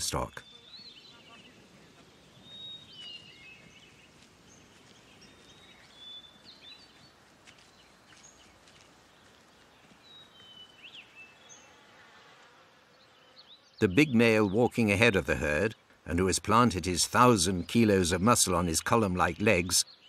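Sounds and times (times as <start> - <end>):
bird chirps and whistled calls: 0.0 - 7.1.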